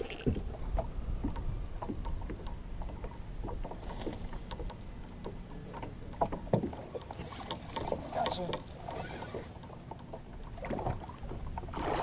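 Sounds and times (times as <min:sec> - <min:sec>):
waves slapping kayak hull: 0:06.4 - 0:12.0.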